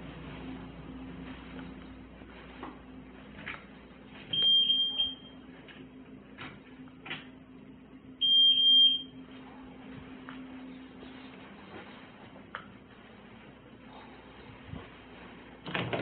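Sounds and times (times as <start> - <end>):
electronic alarm beeps: 4.3 - 5.4, 8.2 - 9.2.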